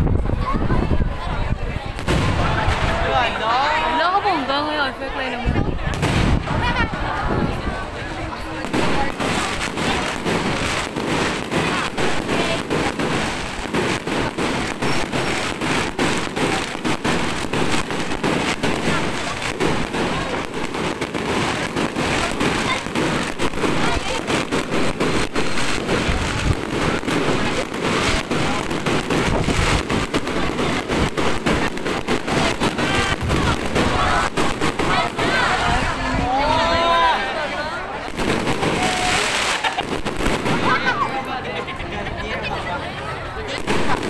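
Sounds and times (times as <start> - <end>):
fireworks popping and crackling: 0.0 - 41.8, 43.0 - 44.0.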